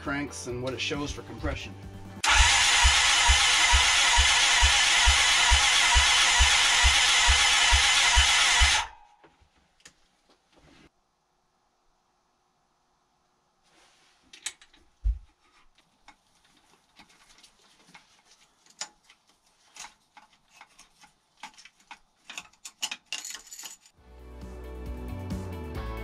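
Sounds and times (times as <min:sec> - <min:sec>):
tools clinking on metal: 0:21.4 - 0:24.0.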